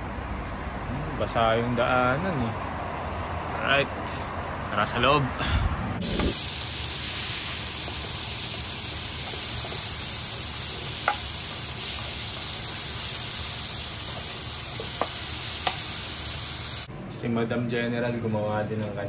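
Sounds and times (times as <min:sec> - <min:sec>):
food sizzling in a frying pan: 0:06.0 - 0:16.9.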